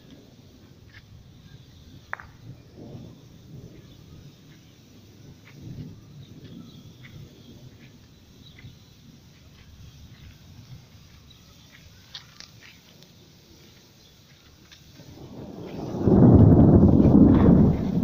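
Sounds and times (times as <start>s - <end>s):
wind rumble on microphone: 0.0s - 11.0s, 15.0s - 18.0s
bird chirps: 5.7s - 12.9s.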